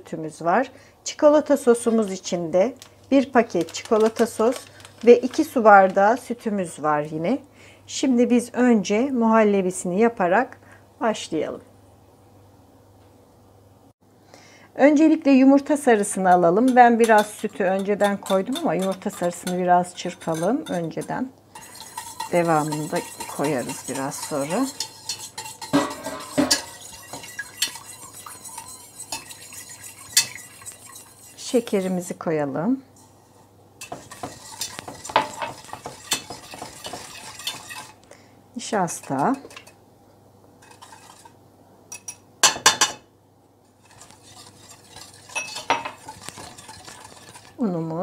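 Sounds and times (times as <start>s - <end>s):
whisk scraping a metal pot: 1.6s - 2.3s, 3.3s - 6.5s, 15.8s - 32.1s, 33.0s - 38.0s, 38.9s - 39.8s, 40.6s - 41.4s, 43.6s - 47.6s.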